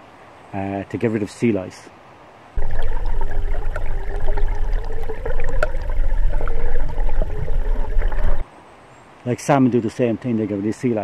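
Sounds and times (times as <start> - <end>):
water rushing and gurgling: 2.6 - 8.4.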